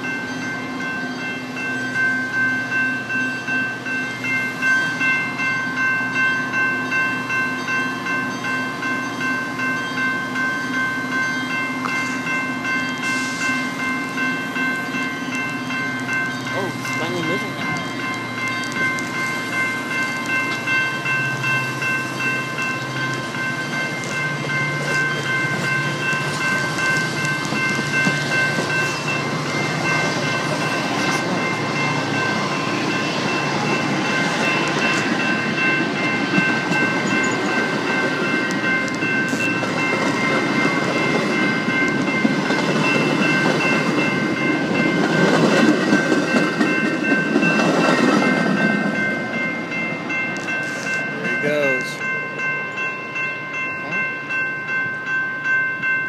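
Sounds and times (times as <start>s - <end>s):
steady high tones: 0.0s - 56.0s
train wheels clacking over rails: 13.0s - 51.2s.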